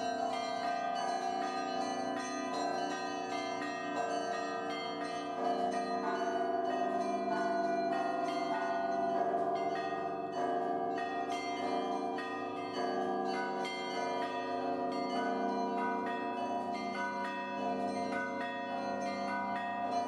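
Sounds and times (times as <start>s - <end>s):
church bells ringing: 0.0s - 20.0s.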